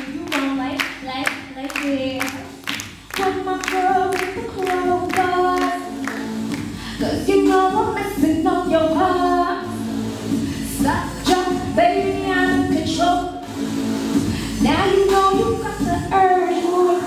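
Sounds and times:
sharp percussive beat: 0.0s - 6.8s
woman singing into microphone: 0.0s - 9.8s, 10.7s - 13.3s, 14.6s - 17.0s.

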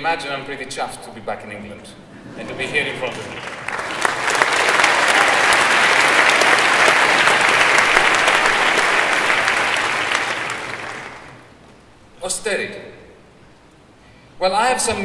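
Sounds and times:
large audience applauding: 2.6s - 11.6s.

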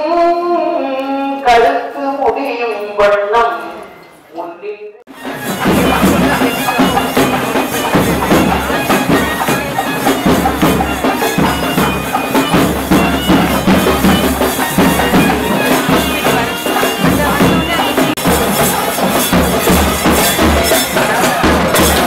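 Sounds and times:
rapid drum strokes: 5.1s - 22.0s
reed wind instruments playing: 5.1s - 22.0s.

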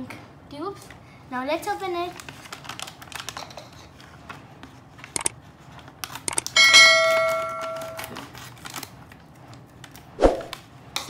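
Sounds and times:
bell ding: 6.6s - 8.1s.

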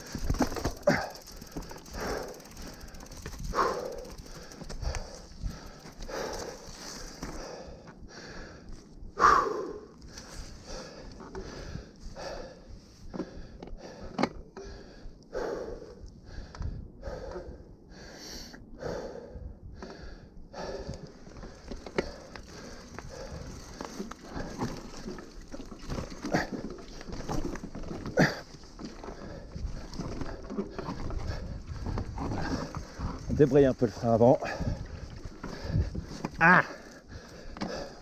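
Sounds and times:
bike clicks and knocks: 0.0s - 7.5s, 13.1s - 14.8s, 21.0s - 34.0s, 37.3s - 38.0s
heavy breathing: 0.0s - 38.0s.

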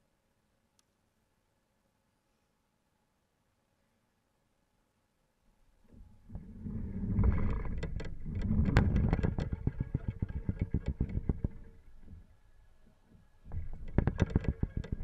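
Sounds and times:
knocks and clicks on kayak hull: 6.4s - 12.2s, 13.0s - 15.0s.

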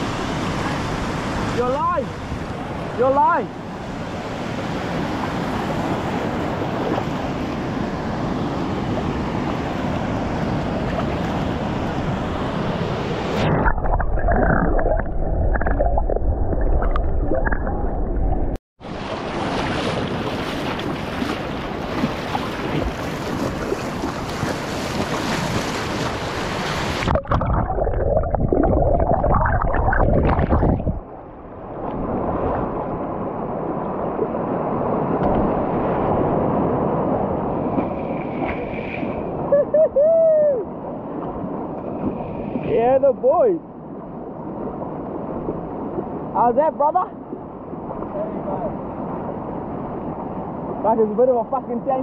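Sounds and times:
underwater churning and gurgling: 13.4s - 18.6s, 26.9s - 32.8s.

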